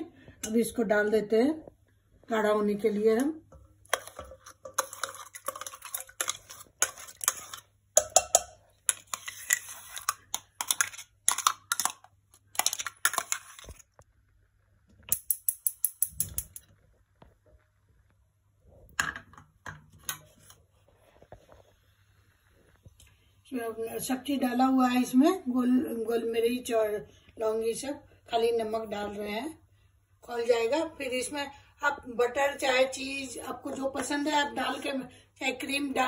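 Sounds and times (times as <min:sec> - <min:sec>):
rapid spoon taps: 0:03.2 - 0:12.0
steel spoon scraping steel container: 0:03.9 - 0:11.8.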